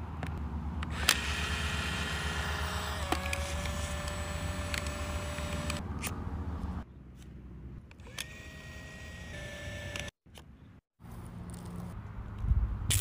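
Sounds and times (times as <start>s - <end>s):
film-eject motor whirring: 0.9s - 5.8s, 8.0s - 10.2s.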